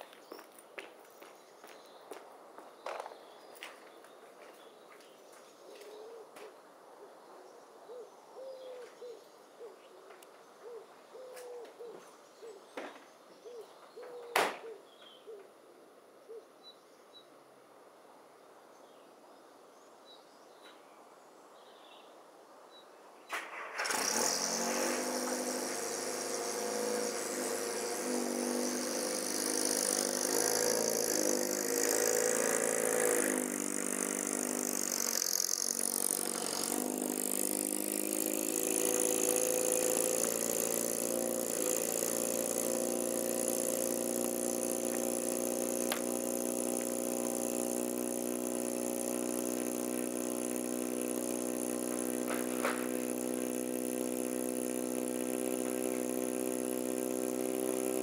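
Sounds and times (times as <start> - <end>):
bird calling: 5.5 - 15.5
car engine starting and running: 23.4 - 58.0.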